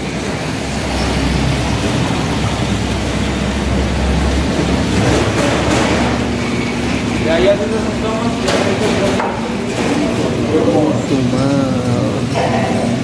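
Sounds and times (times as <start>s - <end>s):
water splashing in wall fountain: 0.0s - 11.1s.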